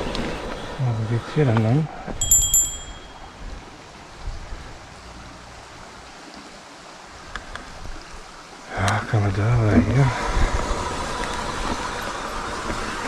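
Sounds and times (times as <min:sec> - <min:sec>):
outdoor rushing noise: 0:09.6 - 0:13.0.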